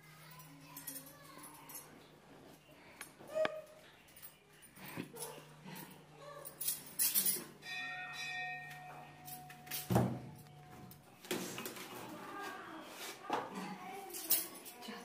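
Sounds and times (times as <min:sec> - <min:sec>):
metallic ring: 0:06.6 - 0:10.5.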